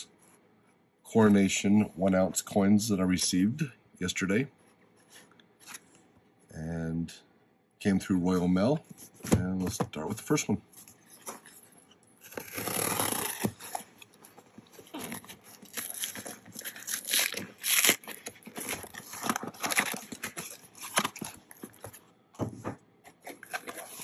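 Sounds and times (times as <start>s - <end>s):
cardboard and tape tearing: 10.8s - 22.0s, 23.1s - 24.0s.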